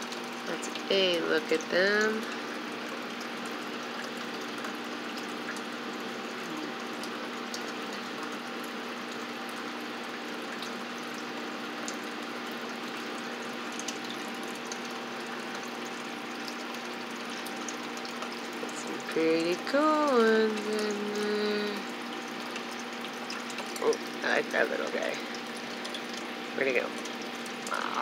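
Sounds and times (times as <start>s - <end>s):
low electrical hum: 0.0s - 28.0s.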